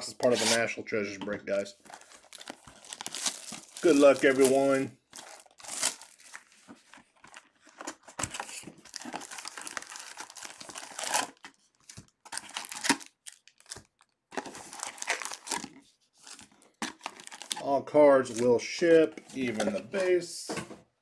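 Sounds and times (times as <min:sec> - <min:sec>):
wrapped packs crinkling: 0:01.8 - 0:18.5
cardboard box being opened: 0:01.9 - 0:04.5, 0:05.2 - 0:11.5.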